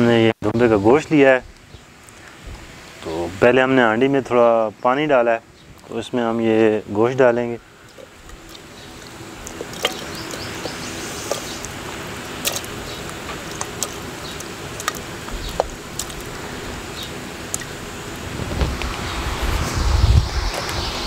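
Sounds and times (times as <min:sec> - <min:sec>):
outdoor background hiss: 0:00.0 - 0:21.0
wood fire crackling: 0:05.7 - 0:19.0
meat plopping into water: 0:07.9 - 0:16.3.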